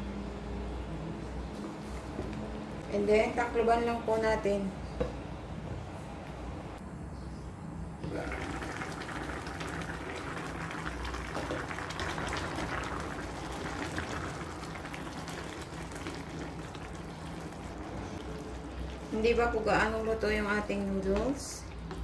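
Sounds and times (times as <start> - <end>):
broth bubbling in a pot: 8.0 - 22.0.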